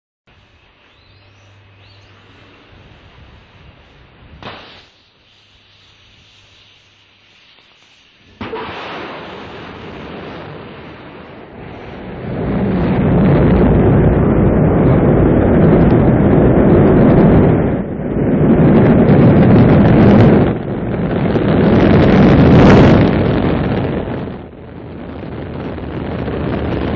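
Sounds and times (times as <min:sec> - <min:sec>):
rocket engines roaring: 0:08.2 - 0:26.9.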